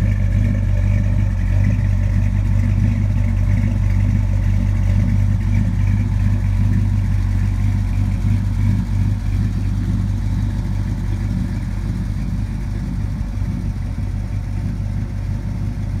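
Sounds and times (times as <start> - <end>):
car engine idling: 0.0 - 16.0.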